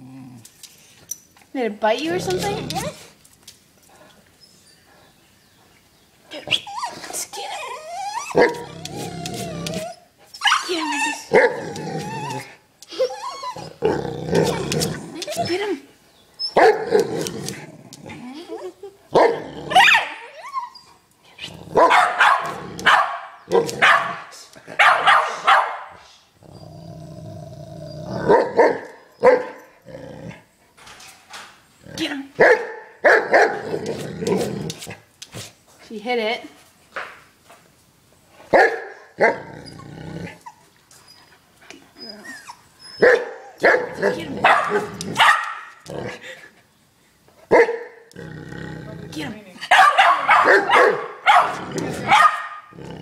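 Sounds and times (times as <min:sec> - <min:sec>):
dog barking and growling: 0:02.0 - 0:03.1, 0:06.4 - 0:12.6, 0:13.4 - 0:15.7, 0:16.6 - 0:20.4, 0:21.4 - 0:30.5, 0:31.8 - 0:35.5, 0:38.5 - 0:40.6, 0:43.0 - 0:46.4, 0:47.4 - 0:53.0
dog barking: 0:16.6 - 0:17.0, 0:21.8 - 0:26.0, 0:28.3 - 0:29.6, 0:32.4 - 0:33.6, 0:38.5 - 0:39.4, 0:43.0 - 0:45.7, 0:47.5 - 0:48.0, 0:49.7 - 0:52.7.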